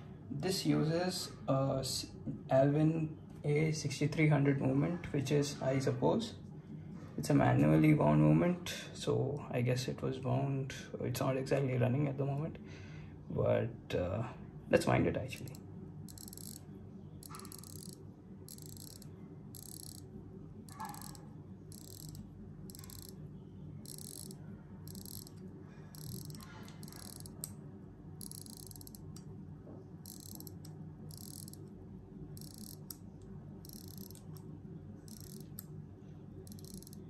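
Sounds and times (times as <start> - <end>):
steady low hum: 0.0 - 37.0
watch winding ratchet clicking: 15.3 - 20.1, 20.7 - 23.2, 23.8 - 27.6, 28.2 - 29.2, 30.0 - 31.7, 32.4 - 34.4, 35.0 - 35.7, 36.4 - 37.0.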